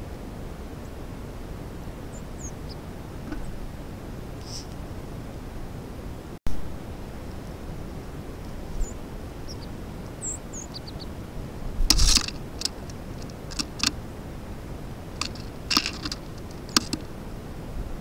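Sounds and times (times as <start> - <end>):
high bird chirps: 2.1 - 2.8, 8.8 - 11.1
camera hiss: 4.4 - 4.9, 11.8 - 14.0
bird clicks and chips: 11.9 - 14.0, 15.2 - 17.1.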